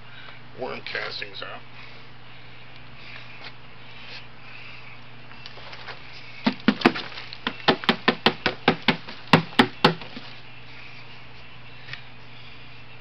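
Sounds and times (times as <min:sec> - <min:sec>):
hollow knocks on foam cooler: 0:06.4 - 0:10.2.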